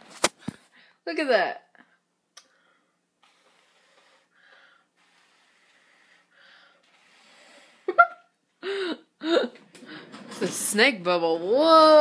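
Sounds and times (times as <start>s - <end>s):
faint breathy blowing: 2.5s - 8.0s
person gasping: 8.6s - 9.6s.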